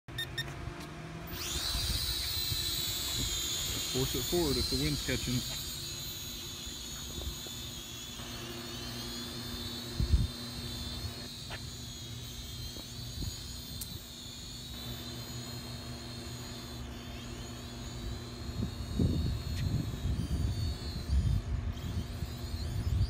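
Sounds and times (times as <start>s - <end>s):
drone propellers whining: 0.1s - 23.0s
low wind rumble: 18.0s - 23.0s.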